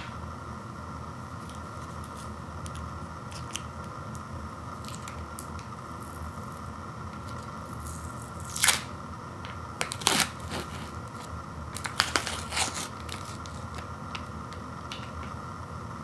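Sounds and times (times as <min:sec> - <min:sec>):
plastic seal peeling and crinkling: 0:09.8 - 0:15.3.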